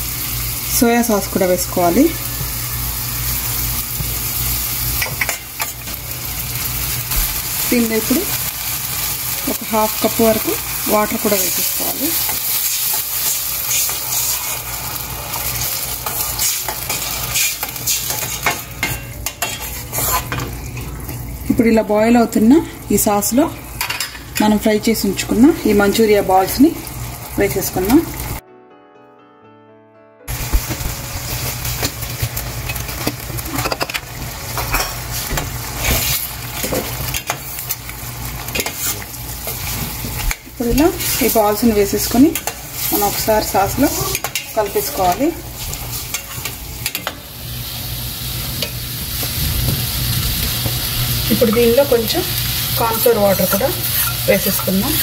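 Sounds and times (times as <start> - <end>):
sauce hissing on the boil: 0.0 - 18.8, 35.0 - 55.0
sauce bubbling and sizzling in pan: 2.0 - 21.5
metal spoon scraping a pan: 11.5 - 14.6, 15.4 - 20.5, 38.6 - 47.2, 53.4 - 55.0.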